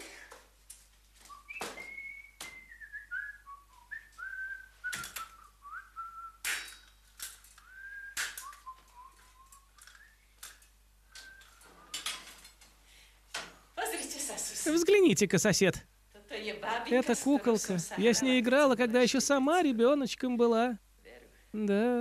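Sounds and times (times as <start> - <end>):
man whistling a tune: 1.2 - 6.5, 7.6 - 10.3, 11.1 - 12.4.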